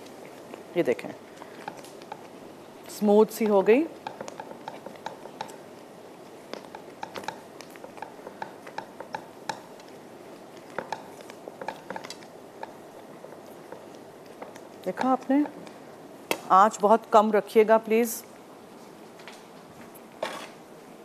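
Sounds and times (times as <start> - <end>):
whisk clicking against pan: 3.3 - 15.7.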